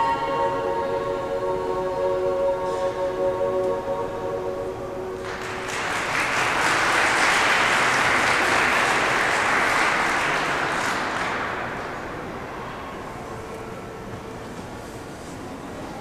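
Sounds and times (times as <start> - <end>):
choir holding chord: 0.0 - 14.0
audience applause: 5.2 - 12.6.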